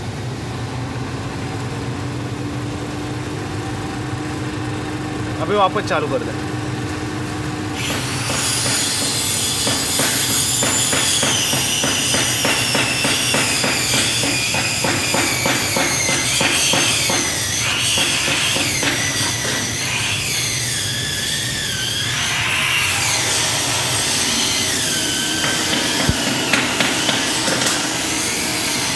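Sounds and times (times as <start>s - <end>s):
electric motor whining: 7.2s - 28.9s.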